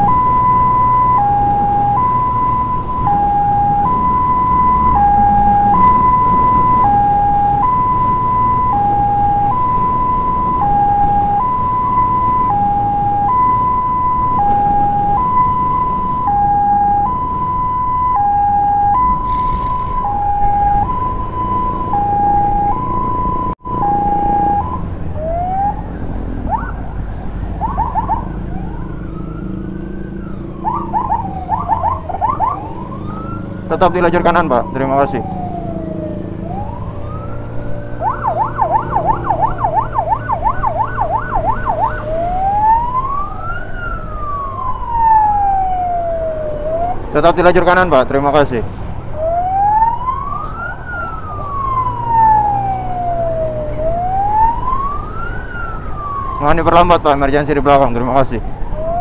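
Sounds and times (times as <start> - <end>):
motorcycle engine rumble: 0.0 - 47.2
emergency siren: 0.0 - 59.0.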